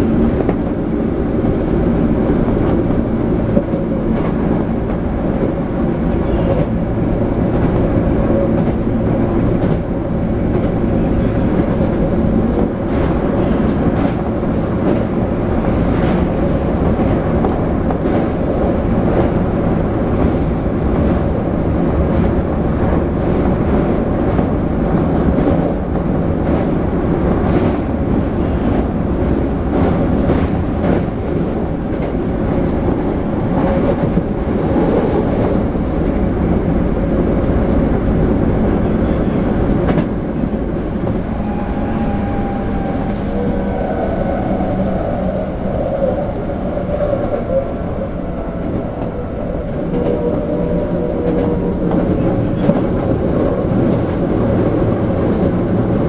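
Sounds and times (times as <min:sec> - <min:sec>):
train wheels rumbling on rail: 0:00.0 - 0:56.0
faint rail clacks: 0:38.9 - 0:56.0.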